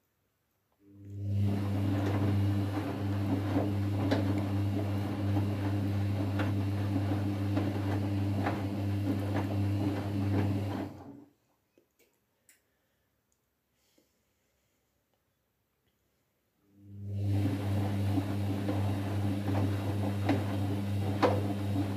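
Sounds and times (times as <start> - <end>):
washing machine mains hum: 0.8 - 11.2, 16.7 - 21.9.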